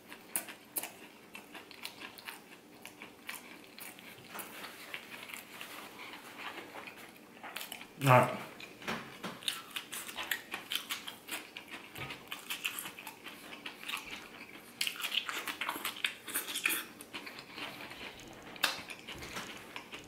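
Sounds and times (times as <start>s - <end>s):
person chewing crunchy food: 0.0s - 8.0s, 9.4s - 20.0s.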